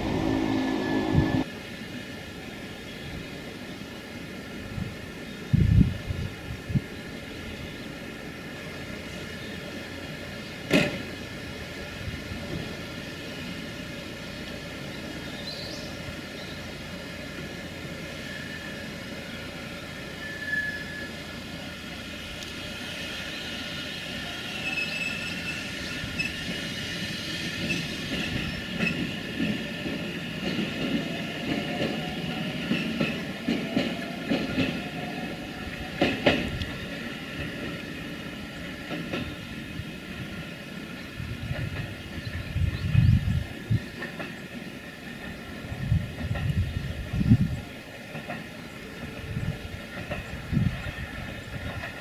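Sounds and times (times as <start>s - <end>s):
electric train motor whine: 0.0s - 1.5s
train wheels clacking: 25.2s - 39.5s, 47.9s - 52.0s.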